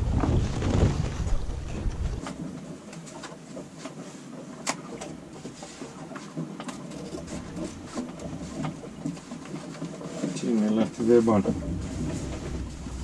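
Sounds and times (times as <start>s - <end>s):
fabric handling rustle: 0.1s - 2.2s.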